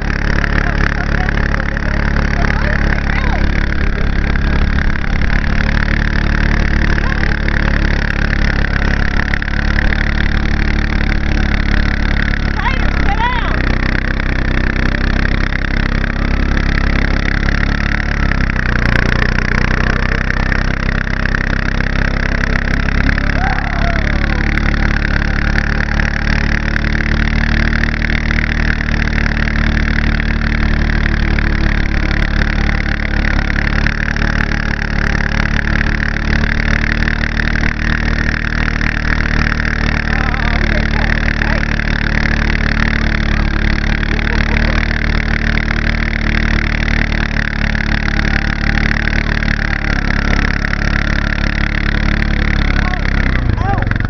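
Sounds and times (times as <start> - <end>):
vehicle engine running: 0.0 - 54.0
constant rushing noise: 52.4 - 54.0.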